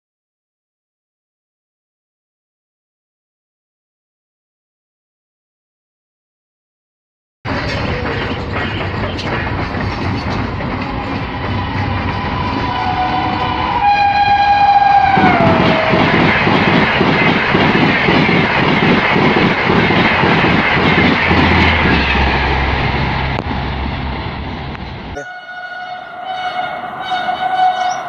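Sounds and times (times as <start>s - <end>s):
train wheels clattering over rail joints: 7.5s - 13.6s, 15.4s - 22.3s
approaching train horn: 11.7s - 16.2s, 25.2s - 28.0s
locomotive horn: 12.4s - 16.1s, 25.2s - 28.0s.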